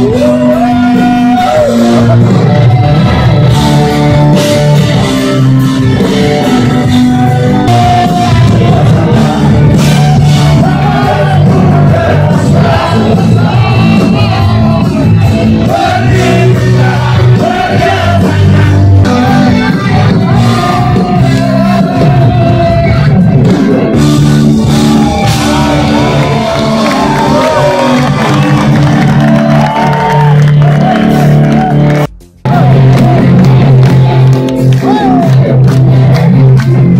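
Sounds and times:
man singing: 0:00.0 - 0:02.5, 0:06.0 - 0:23.4, 0:24.7 - 0:28.6
shouts: 0:00.0 - 0:02.6, 0:24.7 - 0:33.8, 0:34.7 - 0:35.6
live rock band playing: 0:00.0 - 0:36.9.

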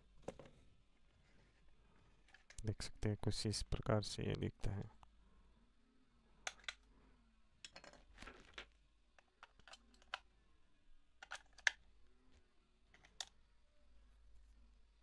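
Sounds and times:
batteries clicking into plastic toy: 0:11.2 - 0:11.8.

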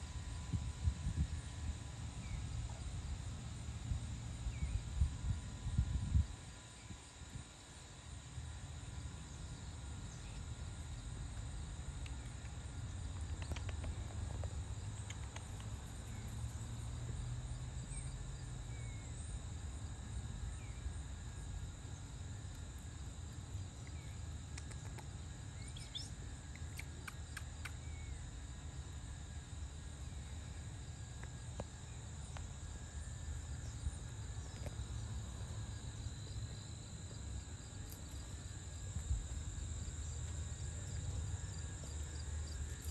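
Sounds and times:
high-pitched insect drone: 0:04.2 - 0:42.9
faint chirps and clicks: 0:11.4 - 0:16.5, 0:23.8 - 0:28.2.

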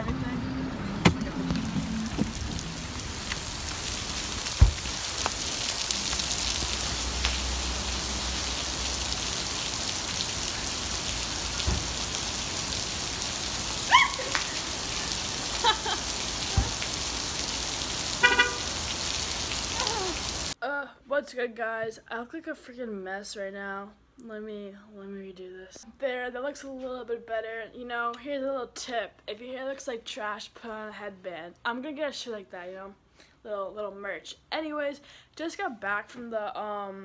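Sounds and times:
heavy rain on pavement and cars: 0:01.0 - 0:20.6
short car horn beep: 0:18.2 - 0:18.7.

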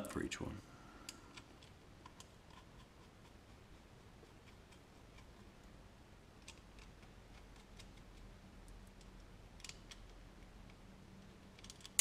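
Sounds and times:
small metallic clicks of nuts: 0:06.4 - 0:10.8, 0:11.5 - 0:12.0.

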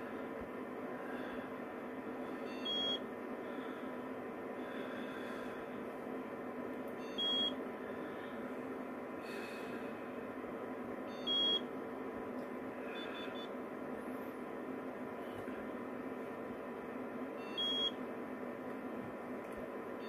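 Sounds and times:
steady background hum: 0:00.0 - 0:20.0
remote control beeps: 0:02.5 - 0:03.0, 0:07.0 - 0:07.6, 0:11.1 - 0:11.7, 0:17.4 - 0:18.0.

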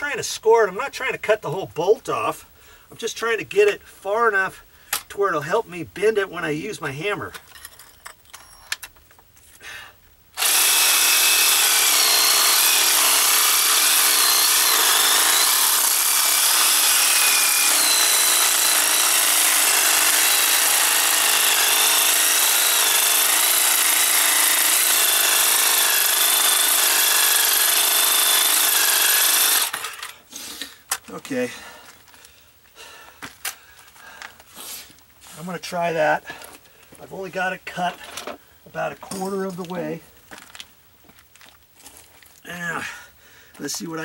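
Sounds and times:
reciprocating saw cutting metal: 0:10.4 - 0:30.2.

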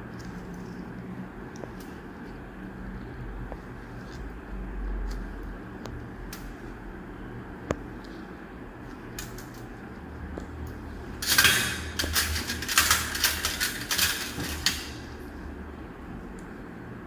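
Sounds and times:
steady low hum: 0:00.0 - 0:17.0
metal instruments clinking: 0:11.2 - 0:15.1.

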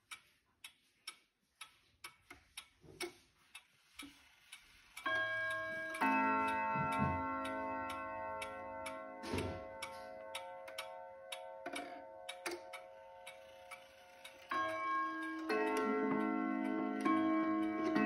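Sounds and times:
pendulum clock ticking: 0:00.0 - 0:18.0
clock chime strokes: 0:05.0 - 0:18.0.

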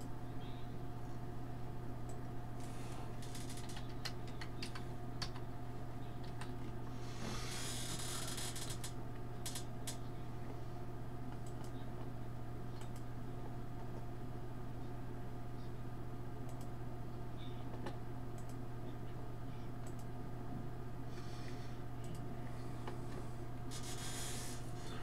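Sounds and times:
low electrical hum: 0:00.0 - 0:25.0
keyboard typing: 0:03.5 - 0:05.5
clicks: 0:16.5 - 0:16.7.

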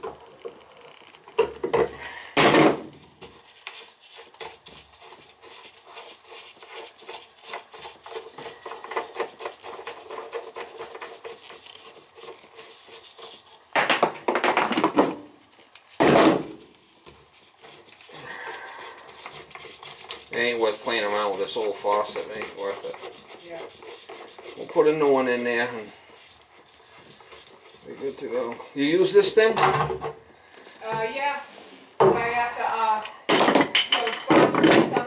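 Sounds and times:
gloved hand scrubbing: 0:03.2 - 0:13.7, 0:17.1 - 0:29.5.

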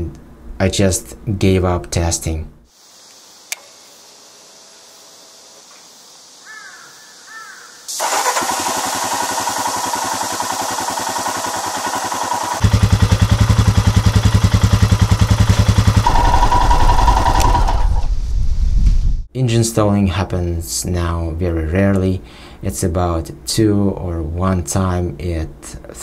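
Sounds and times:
motorcycle engine idling: 0:08.1 - 0:18.0.

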